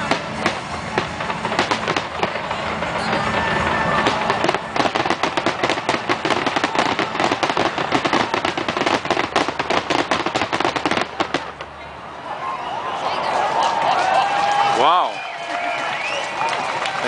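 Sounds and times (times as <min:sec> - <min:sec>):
crackling fireworks bursting: 0:00.0 - 0:11.9.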